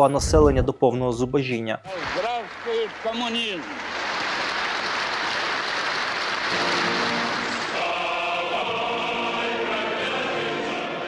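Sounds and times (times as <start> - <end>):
crowd applauding: 1.9 - 9.2
choir singing long notes: 6.4 - 11.0.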